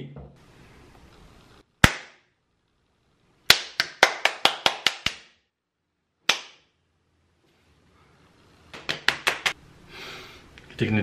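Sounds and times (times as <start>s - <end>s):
sharp hand claps: 1.8s - 2.2s, 3.5s - 5.4s, 6.3s - 6.7s, 8.7s - 9.6s.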